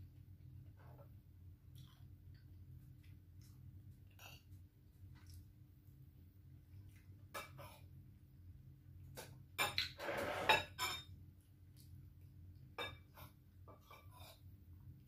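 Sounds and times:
spoon clattering and scraping: 9.6s - 11.2s
metal spoon clinking glass bowl: 10.6s - 11.2s.

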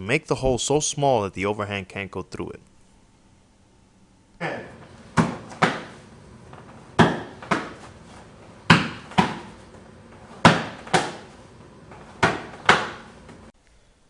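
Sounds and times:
punches smacking forearms: 5.1s - 6.0s, 7.0s - 7.9s, 8.6s - 9.6s, 10.3s - 11.3s, 12.1s - 13.1s.

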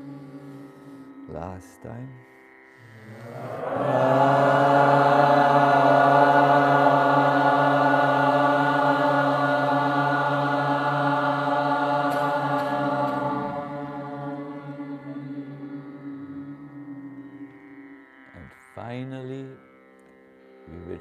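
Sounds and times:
man chanting a held note: 0.0s - 7.3s
steady low drone: 0.0s - 18.6s.

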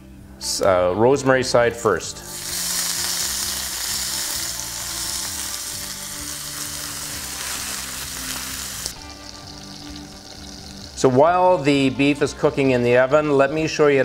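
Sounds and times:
soft background music: 0.0s - 14.0s
meat sizzling in a frying pan: 2.3s - 11.1s.

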